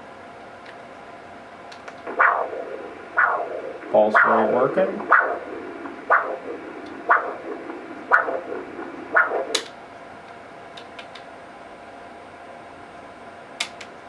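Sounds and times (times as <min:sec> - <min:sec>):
doppler whoosh pulsing: 0:02.0 - 0:09.7.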